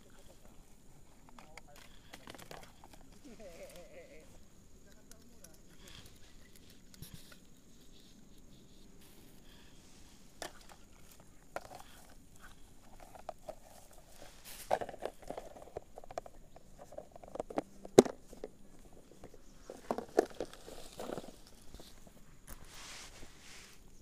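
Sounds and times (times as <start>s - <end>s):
fishing gear clicks and knocks: 0.0s - 7.6s, 9.6s - 22.7s
rustling in grass: 3.1s - 4.5s, 5.8s - 17.1s, 17.7s - 24.0s.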